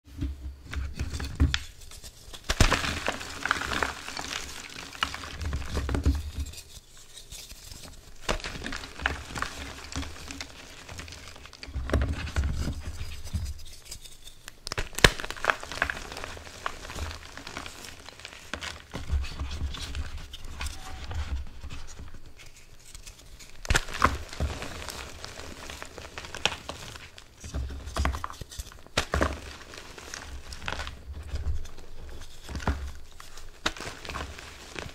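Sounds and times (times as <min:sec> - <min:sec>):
chalk crunching and crumbling: 0:00.9 - 0:34.9
sharp crack: 0:23.6 - 0:24.4.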